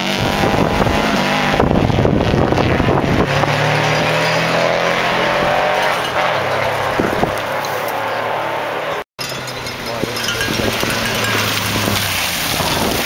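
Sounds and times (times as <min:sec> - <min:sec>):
rally car engine revving: 0:00.0 - 0:13.0
gravel spraying: 0:09.4 - 0:13.0.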